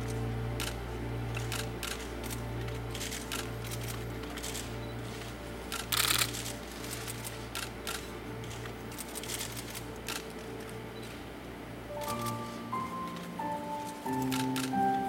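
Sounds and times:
steady low hum: 0.0 - 15.0
camera shutters clicking: 1.4 - 4.7, 5.7 - 8.0, 12.0 - 12.5, 14.1 - 14.8.

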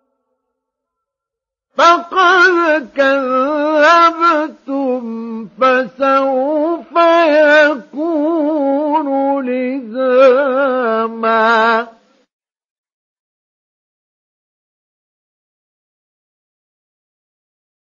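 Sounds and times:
man chanting recitation: 1.8 - 12.0.

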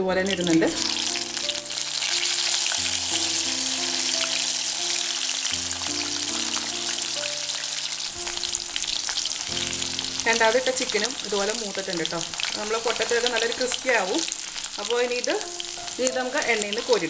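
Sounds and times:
background music: 0.0 - 17.0
oil sizzling: 0.0 - 17.0.

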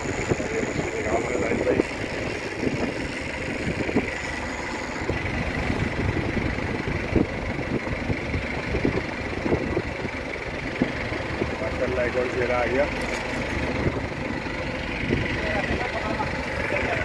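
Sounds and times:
boat engine running: 0.0 - 17.0
wind: 0.0 - 17.0.

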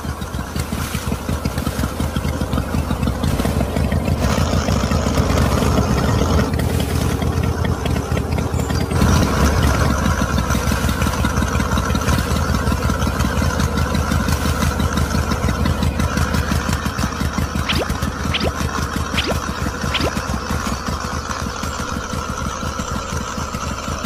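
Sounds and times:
small motor running: 0.0 - 24.0.

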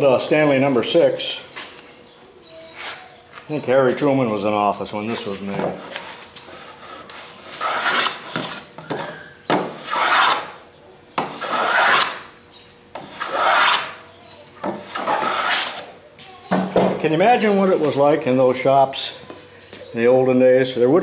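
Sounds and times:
hand plane shaving wood: 5.7 - 8.6, 9.7 - 10.5, 11.3 - 12.2, 13.0 - 14.0, 14.8 - 15.9.

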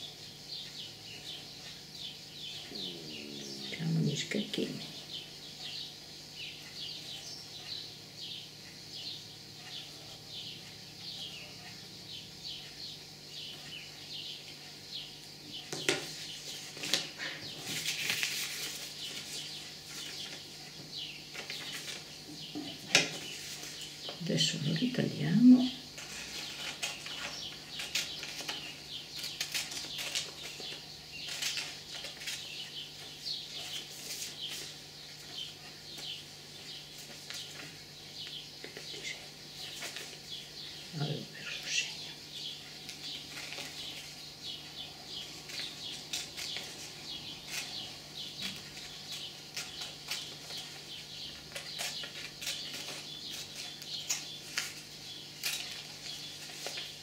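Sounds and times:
paper crackling and rustling: 15.9 - 24.2, 26.0 - 39.0, 39.6 - 40.5, 42.7 - 44.2, 45.1 - 57.0
scissors snipping paper: 55.4 - 56.9.

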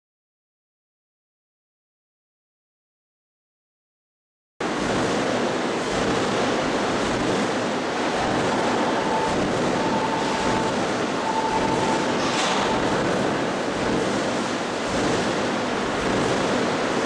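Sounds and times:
press machinery noise: 4.6 - 17.0
faint whine: 7.6 - 14.0.

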